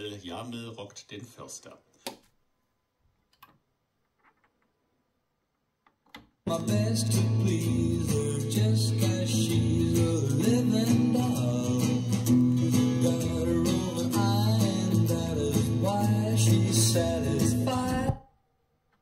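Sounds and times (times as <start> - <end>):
pop song from vinyl record: 6.4 - 18.3.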